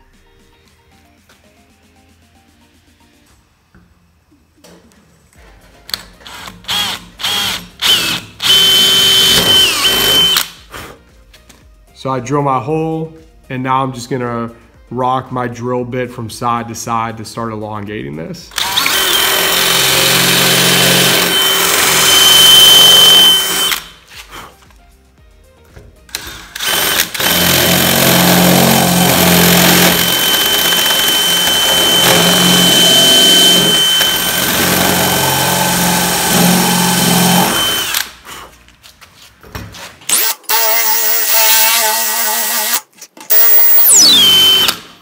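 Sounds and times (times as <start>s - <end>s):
cordless drill drilling wood: 6.3s - 10.4s, 18.5s - 23.9s, 26.2s - 38.1s, 40.1s - 44.8s.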